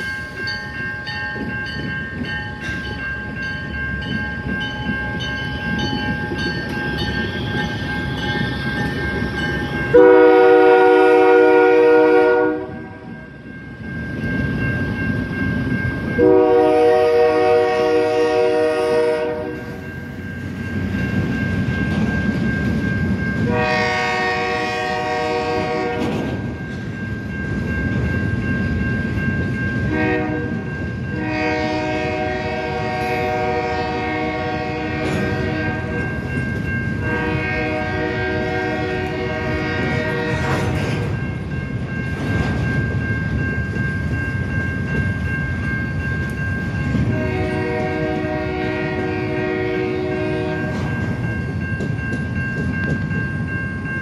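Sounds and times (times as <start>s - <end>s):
train horn blasts: 9.9s - 13.1s, 16.2s - 19.8s, 23.4s - 26.2s, 29.9s - 36.1s, 37.0s - 41.1s, 47.1s - 50.8s
train wheels clattering over rails: 19.6s - 54.0s.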